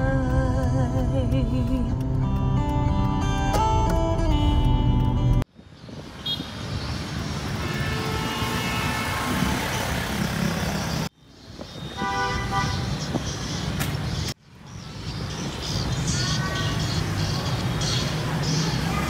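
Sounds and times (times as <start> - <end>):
cars passing: 1.9 - 19.0
motorbikes passing: 5.7 - 19.0
car horn toots: 7.6 - 10.0, 11.8 - 12.9.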